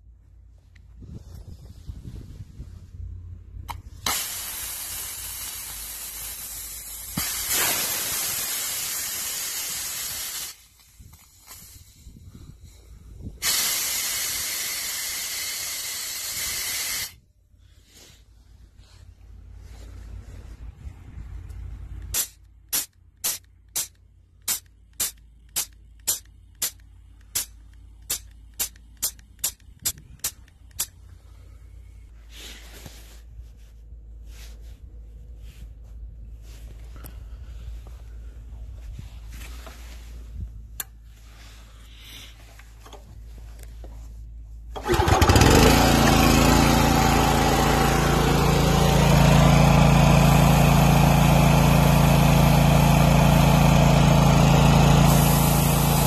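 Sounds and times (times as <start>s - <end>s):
compressed air hissing from valve: 3.9s - 12.8s, 13.4s - 17.2s, 22.1s - 23.9s, 55.1s - 56.0s.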